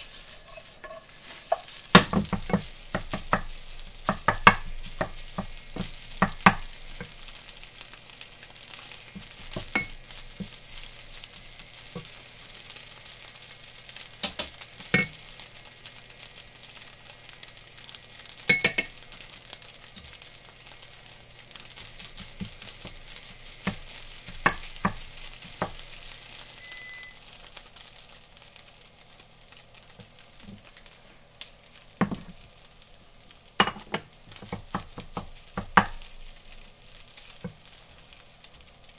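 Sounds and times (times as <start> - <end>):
spatula knocking and scraping pan: 0.0 - 7.2, 9.1 - 10.6, 21.8 - 25.9, 33.6 - 36.1
rice sizzling in a frying pan: 0.0 - 38.9.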